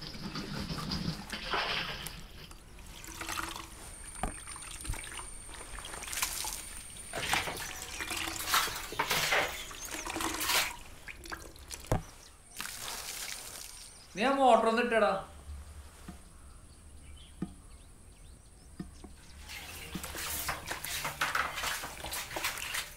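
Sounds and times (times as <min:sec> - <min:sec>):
water splashing in plastic tank: 0:00.0 - 0:13.8, 0:19.2 - 0:22.9.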